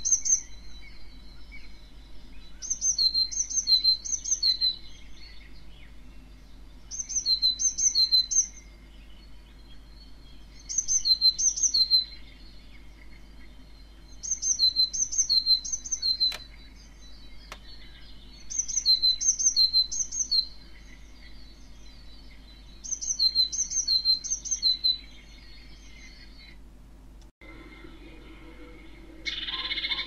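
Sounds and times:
brief clicks: 0:16.2 - 0:16.5.

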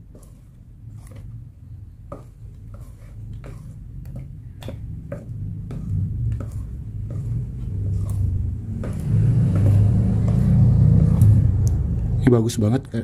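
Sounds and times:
spatula tapping plastic tub: 0:02.1 - 0:11.3
low rumble: 0:04.9 - 0:12.5.

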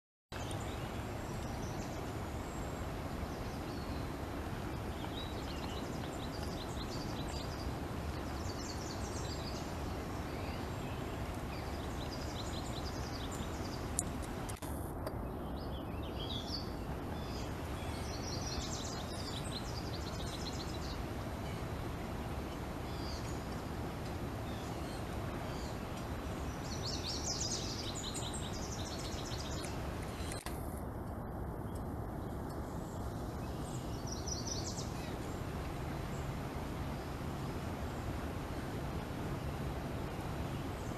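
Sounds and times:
songbirds chirping: 0:00.3 - 0:40.9.

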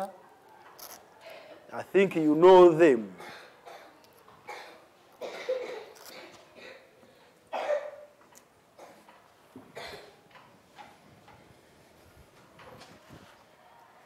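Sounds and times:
faint coughs and throat sounds: 0:03.1 - 0:08.2, 0:08.8 - 0:10.2.

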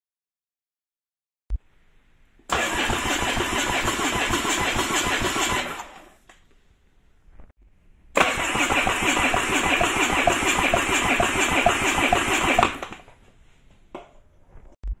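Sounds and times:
engine cranking without firing: 0:02.5 - 0:06.2, 0:08.2 - 0:13.0.

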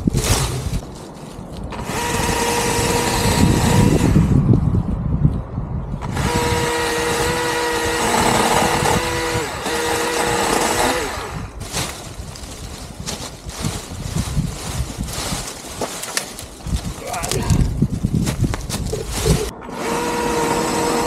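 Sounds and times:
electric chainsaw whining: 0:01.8 - 0:04.4, 0:06.0 - 0:11.6, 0:19.2 - 0:21.0.

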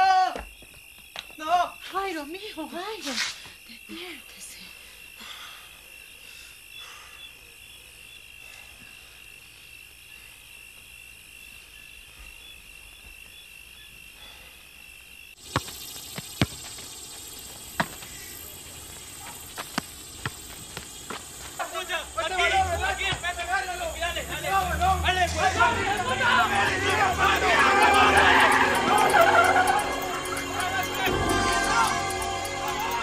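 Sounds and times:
crickets chirring: 0:00.0 - 0:33.0
background hiss: 0:01.4 - 0:26.3.

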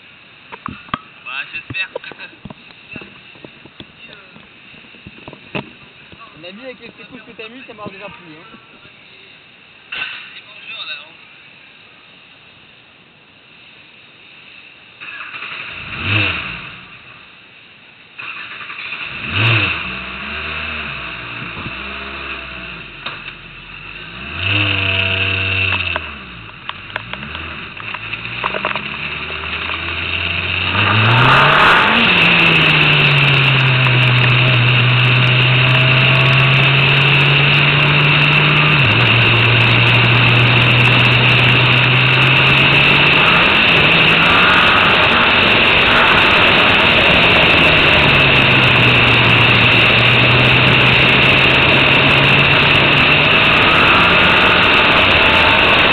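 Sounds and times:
race car engine revving: 0:18.4 - 0:55.9.

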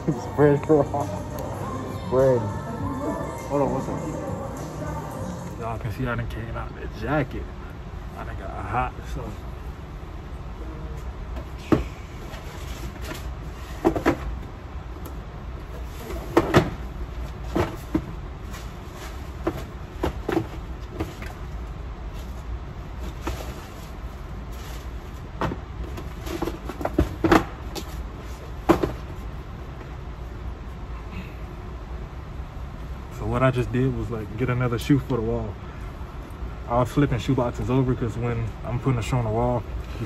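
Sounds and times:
steady low hum: 0:00.0 - 0:40.0
cardboard boxes knocking and scraping: 0:15.9 - 0:18.2, 0:19.0 - 0:21.3, 0:25.4 - 0:28.0, 0:28.6 - 0:29.2.

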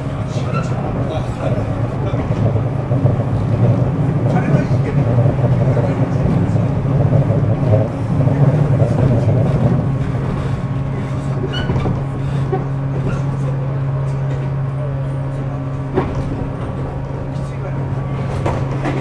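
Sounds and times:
train motor rumble: 0:00.0 - 0:19.0.

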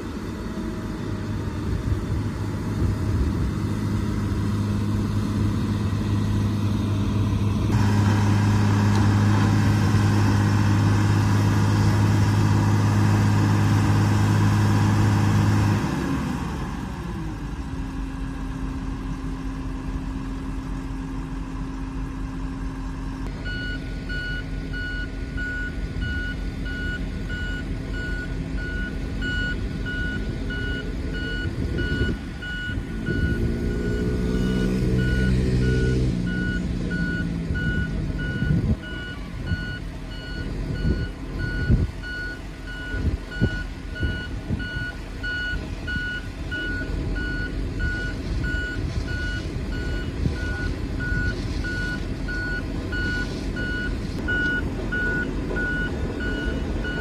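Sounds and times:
road roller engine drone: 0:00.0 - 0:57.0
reversing alarm beeping: 0:23.4 - 0:57.0.

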